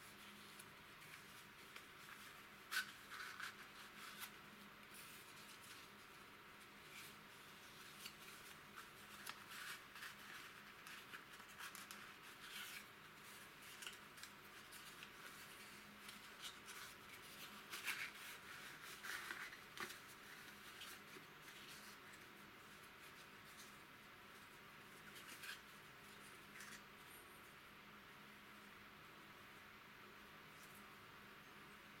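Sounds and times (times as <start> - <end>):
cardboard crackling and rustling: 0.1 - 23.8.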